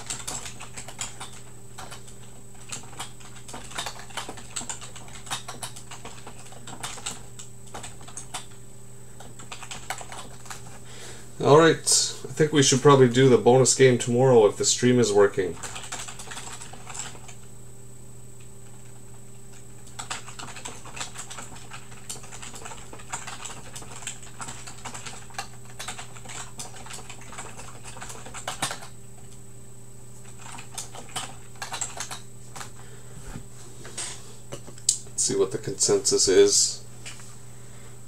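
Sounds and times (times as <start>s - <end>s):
typing on computer keyboard: 0.0s - 8.6s, 9.2s - 10.7s, 15.5s - 17.4s, 18.6s - 29.4s, 30.2s - 32.7s
low electrical hum: 0.0s - 38.0s.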